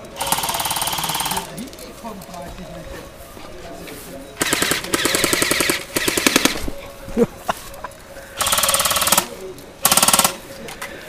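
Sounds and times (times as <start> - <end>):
airsoft guns firing bursts: 0.2 - 1.5, 4.4 - 6.6, 8.4 - 10.4.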